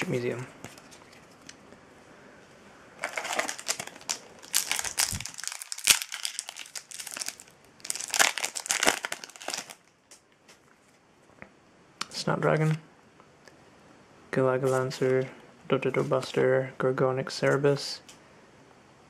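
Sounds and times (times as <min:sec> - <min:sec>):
foil wrapper crinkling and tearing: 0:03.0 - 0:10.0.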